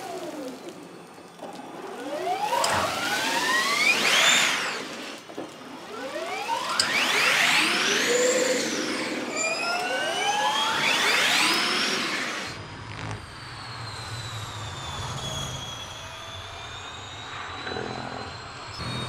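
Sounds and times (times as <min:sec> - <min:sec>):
electric race car whine: 0:00.0 - 0:19.0.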